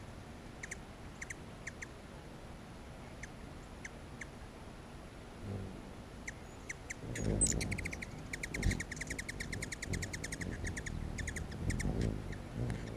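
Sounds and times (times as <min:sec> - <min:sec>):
low wing hum: 0:00.0 - 0:12.9
hummingbird squeaky chip notes: 0:06.2 - 0:12.9.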